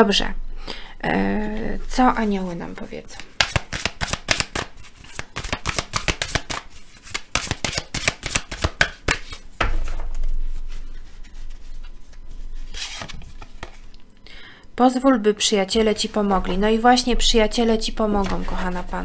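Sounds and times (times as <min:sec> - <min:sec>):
cards being shuffled: 0:03.1 - 0:14.0.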